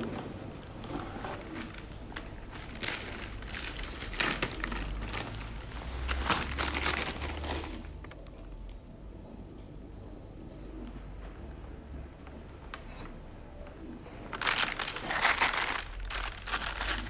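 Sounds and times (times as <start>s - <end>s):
rustling and crinkling: 0.0s - 8.8s, 14.0s - 17.0s
low steady hum: 0.0s - 17.0s.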